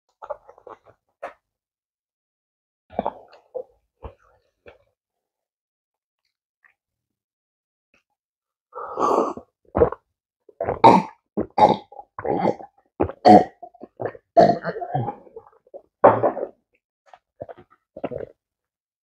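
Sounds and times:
person gulping water: 0.1s - 1.4s, 2.9s - 4.9s, 8.9s - 18.4s.

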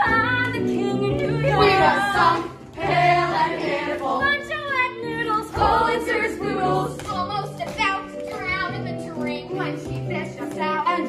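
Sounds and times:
group of voices singing in chorus: 1.5s - 4.4s, 5.6s - 7.0s.

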